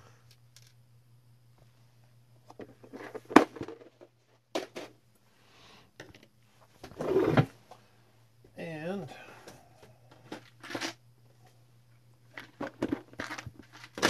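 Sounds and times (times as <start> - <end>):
low steady hum: 0.0 - 14.0
plastic parts clicking and knocking: 0.3 - 0.8, 6.0 - 6.3, 12.3 - 14.0.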